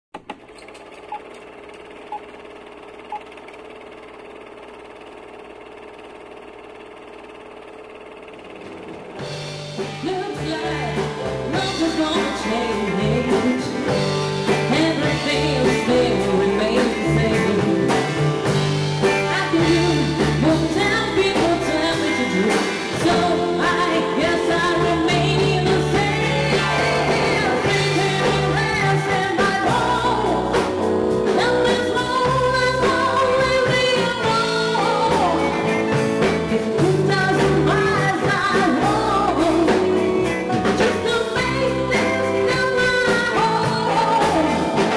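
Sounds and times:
electric bass: 6.9 - 44.9
drum kit: 8.0 - 44.9
electric guitar: 8.4 - 44.9
woman singing into microphone: 9.9 - 18.3, 19.0 - 44.9.

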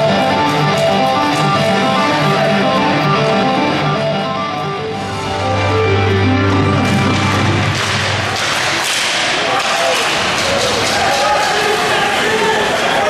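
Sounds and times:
guitar-led music: 0.0 - 8.4.

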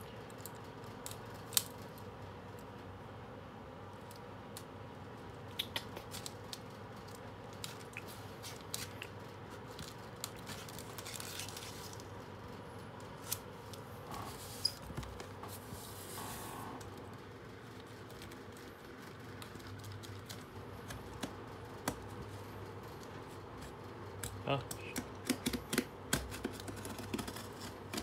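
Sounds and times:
cardboard rustling: 7.4 - 12.3, 13.1 - 23.8, 25.4 - 28.0.

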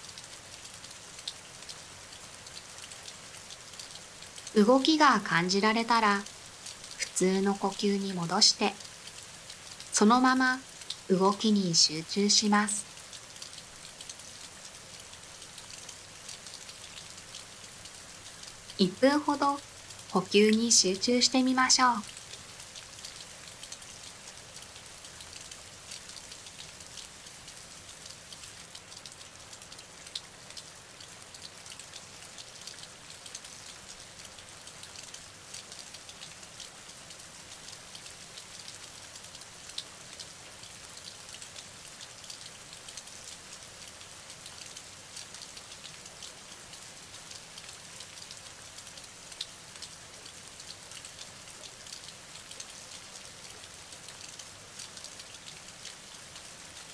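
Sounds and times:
steady rain patter: 0.0 - 56.9.

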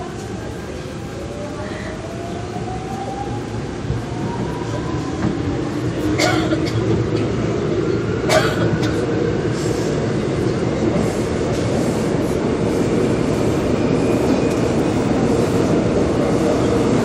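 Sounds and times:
subway train rumble: 0.0 - 17.0.

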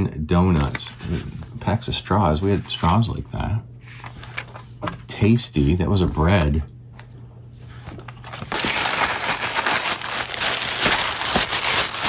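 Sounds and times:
tissue paper crinkling: 7.8 - 12.0.

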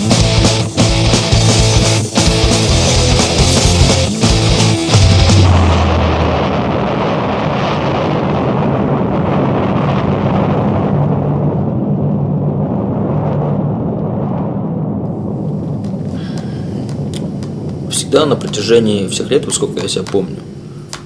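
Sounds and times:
punk band chord: 0.0 - 6.8
rumbling amplifier noise: 0.0 - 21.0
low steady hum: 14.9 - 21.0.

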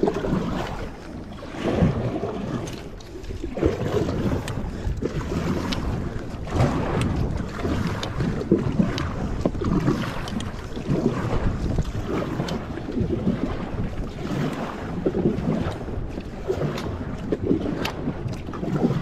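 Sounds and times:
water drips: 0.0 - 13.0
paddle splashing in water: 0.0 - 19.0
wind on microphone: 0.0 - 19.0.

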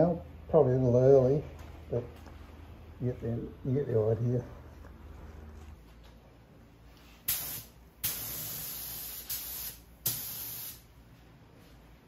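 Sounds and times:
paint spray gun hissing: 7.3 - 10.9.

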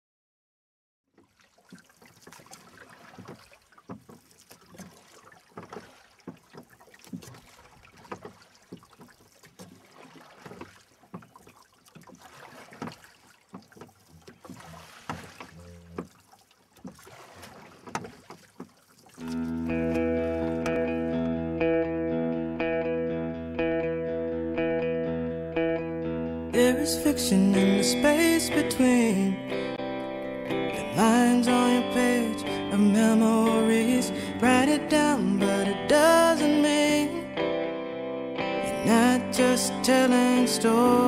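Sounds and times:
oar knocks and splashes: 1.1 - 21.0.

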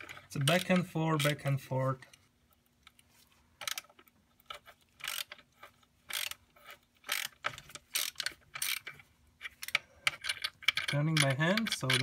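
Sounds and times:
hand ratchet clicking: 3.6 - 12.0.

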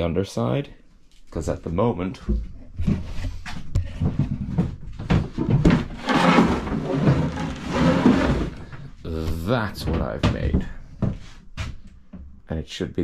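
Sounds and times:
wood scraping on wood: 2.8 - 11.8
wooden boards knocking and clattering: 3.8 - 11.2.

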